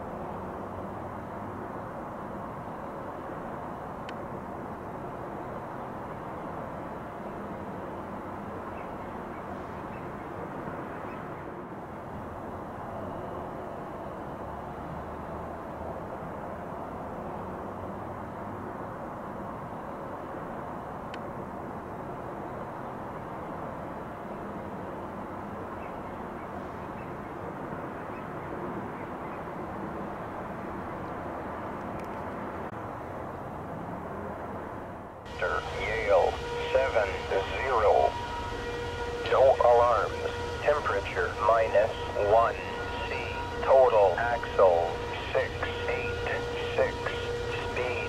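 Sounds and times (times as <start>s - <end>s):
outdoor rumble and hiss: 0.0s - 48.0s
outdoor background rumble: 29.2s - 48.0s.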